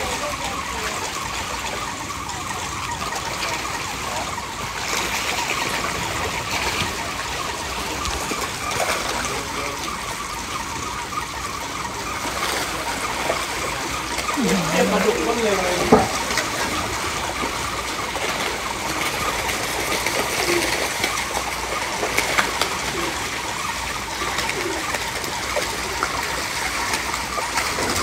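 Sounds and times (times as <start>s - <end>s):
fish splashing at water surface: 0.0s - 28.0s.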